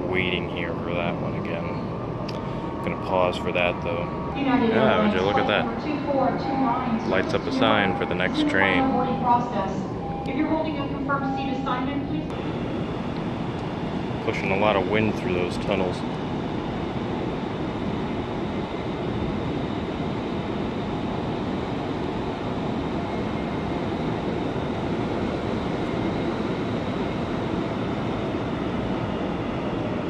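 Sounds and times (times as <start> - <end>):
air rushing through tunnel: 0.0 - 8.0
faint high whine: 0.0 - 30.0.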